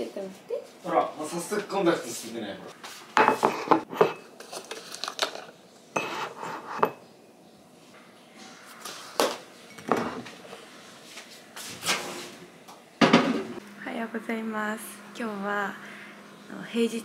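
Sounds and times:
mug and cartons knocking on counter: 0:13.0 - 0:13.5.

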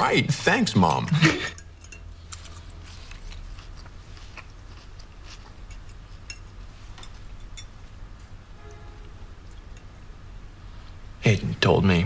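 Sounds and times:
low room hum: 0:00.0 - 0:12.0
chewing: 0:01.9 - 0:07.7.

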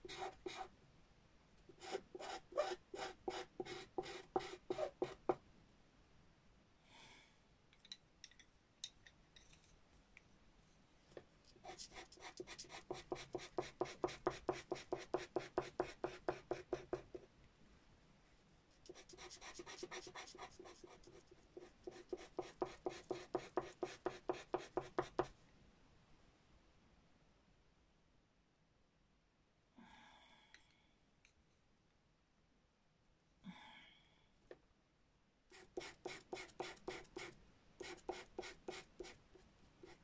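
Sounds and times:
pencil strokes on paper: 0:00.0 - 0:00.7, 0:01.7 - 0:05.4, 0:11.5 - 0:17.3, 0:18.7 - 0:25.3, 0:35.5 - 0:40.0.

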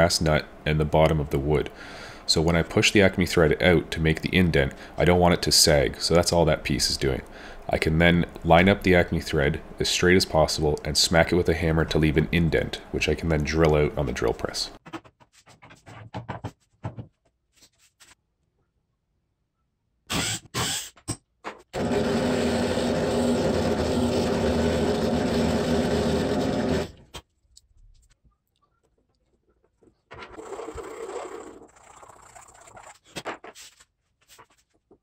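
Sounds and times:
drill press drilling wood: 0:21.8 - 0:27.0.

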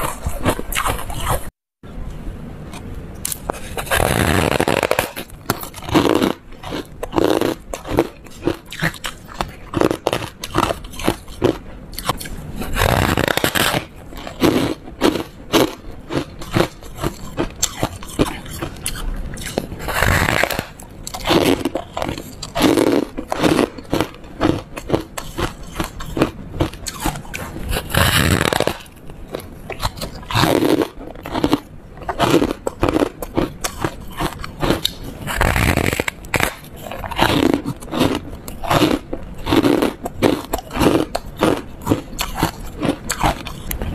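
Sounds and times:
person crunching frozen foam: 0:03.3 - 0:43.9.

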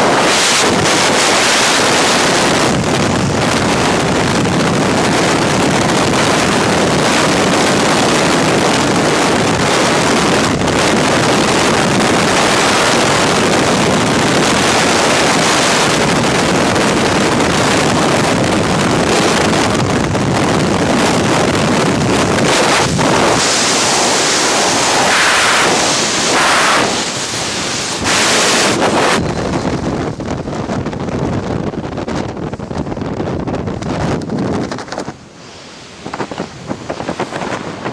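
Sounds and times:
freefall wind rushing: 0:00.0 - 0:37.9
parachute opening: 0:20.5 - 0:30.8.

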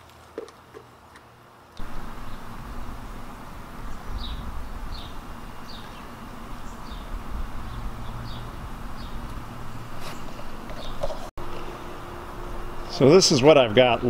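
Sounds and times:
low rumble: 0:01.8 - 0:10.0
bird chirping: 0:01.8 - 0:11.0.

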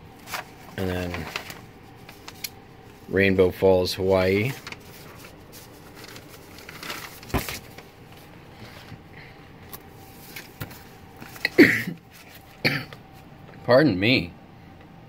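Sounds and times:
paper and card rustling: 0:00.1 - 0:12.6
man speaking: 0:00.8 - 0:01.3, 0:03.1 - 0:04.6, 0:13.7 - 0:14.4
man clearing throat: 0:11.4 - 0:12.0, 0:12.6 - 0:13.0.

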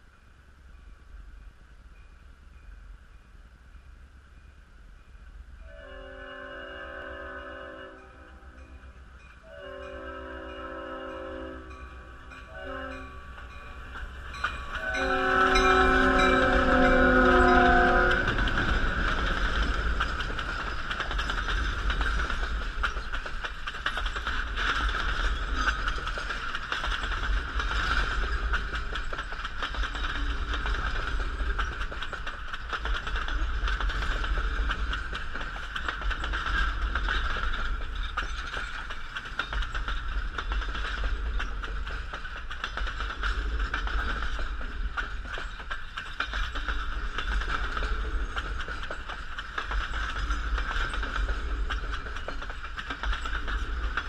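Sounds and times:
train coaches rumbling past: 0:00.0 - 0:54.0
wheels on rails: 0:00.0 - 0:54.0
train horn blast: 0:05.6 - 0:08.6, 0:09.5 - 0:11.9, 0:12.5 - 0:13.3, 0:14.8 - 0:18.5.

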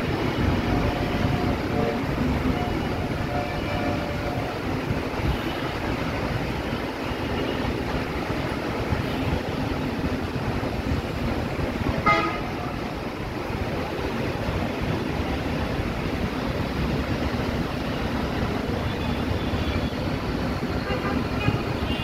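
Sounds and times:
traffic rumble on wet road: 0:00.0 - 0:22.0
vehicle horn toot: 0:12.0 - 0:12.6.

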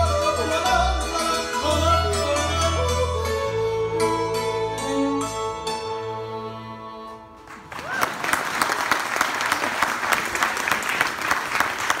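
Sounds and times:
string band playing: 0:00.0 - 0:08.0
audience applause: 0:07.4 - 0:12.0.

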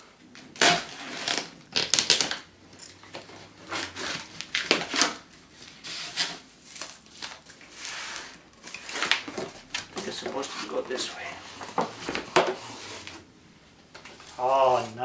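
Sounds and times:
knife slitting packing tape: 0:00.6 - 0:02.4.

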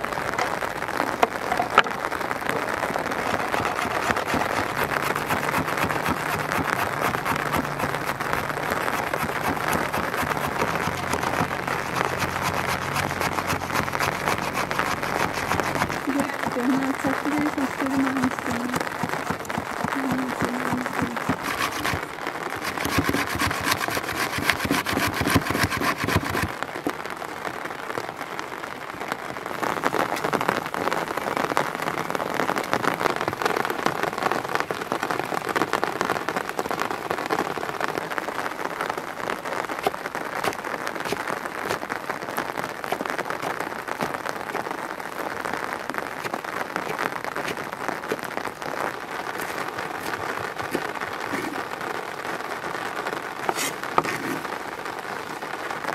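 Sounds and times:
steady rain pattering: 0:00.0 - 0:55.9
cucumber scraped on metal grater: 0:03.2 - 0:26.5, 0:49.4 - 0:51.6, 0:53.5 - 0:54.5.

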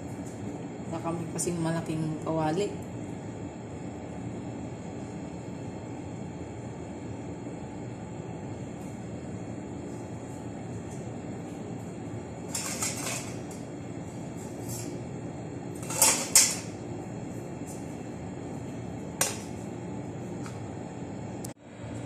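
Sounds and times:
steady background hum: 0:00.0 - 0:22.0
cookware scraping: 0:12.5 - 0:13.5, 0:15.8 - 0:16.7.

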